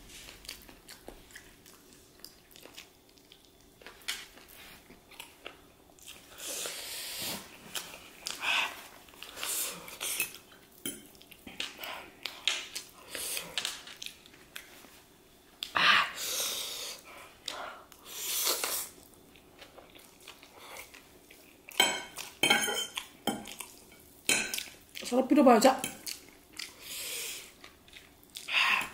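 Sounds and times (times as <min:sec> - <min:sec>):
fork scraping and clinking on plate: 0:21.8 - 0:23.6.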